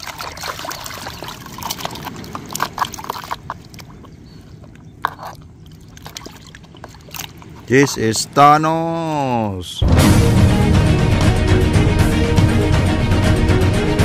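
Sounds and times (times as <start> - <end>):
liquid splashing in a plastic tub: 0.0 - 7.9
water dripping: 0.0 - 8.5.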